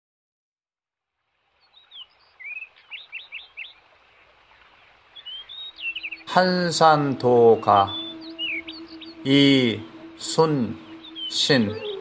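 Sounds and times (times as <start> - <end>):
birds chirping: 1.5 - 12.0.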